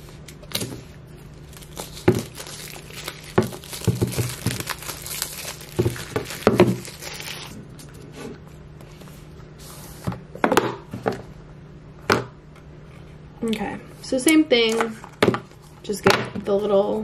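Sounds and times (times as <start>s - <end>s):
plastic wrap crinkling and tearing: 1.3s - 7.6s.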